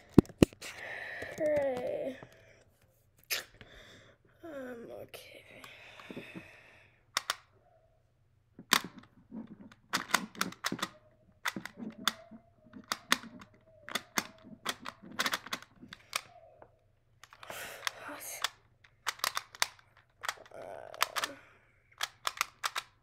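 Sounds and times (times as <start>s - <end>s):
puzzle clicking: 0.0s - 2.0s, 7.1s - 7.6s, 8.6s - 23.0s.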